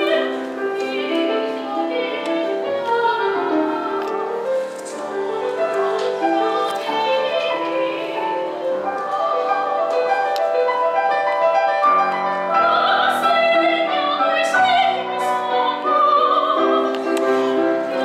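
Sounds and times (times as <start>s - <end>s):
grand piano: 0.0s - 18.0s
woman singing classical song: 0.0s - 18.0s.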